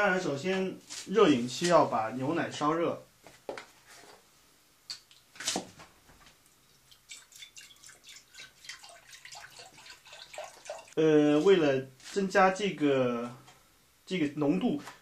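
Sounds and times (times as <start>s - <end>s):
milk glugging and splashing: 6.5s - 11.0s.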